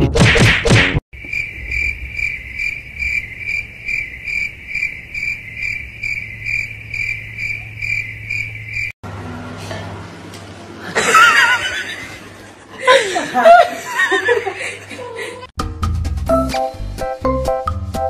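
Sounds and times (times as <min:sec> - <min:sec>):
cricket chirping: 0:01.2 - 0:09.0.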